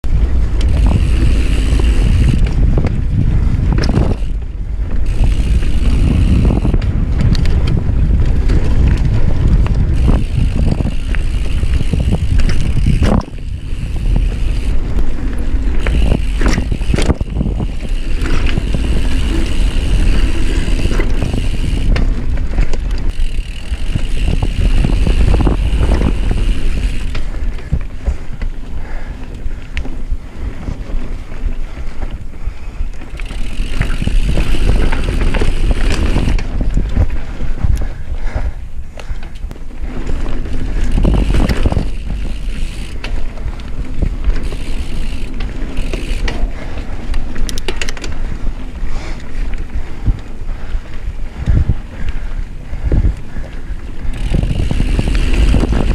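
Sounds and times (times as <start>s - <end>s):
bike clattering over bumps: 0.0s - 55.9s
tyre noise on dirt: 0.0s - 55.9s
wind rumble on microphone: 0.0s - 55.9s.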